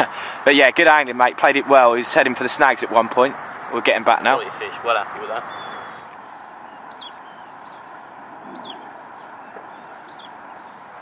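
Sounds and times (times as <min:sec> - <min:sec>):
high falling bird chirps: 0:05.2 - 0:11.0.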